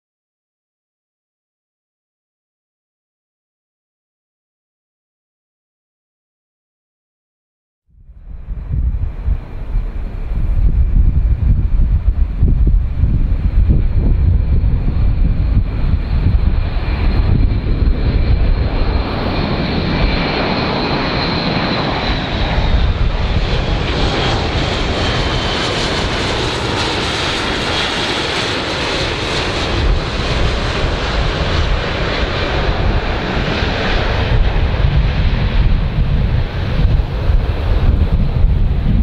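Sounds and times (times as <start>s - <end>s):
turboprop aircraft droning: 7.9s - 39.0s.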